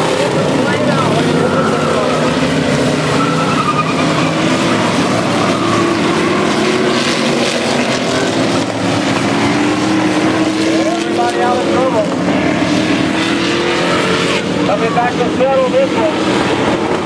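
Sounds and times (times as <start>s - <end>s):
race car engines revving: 0.0s - 17.0s.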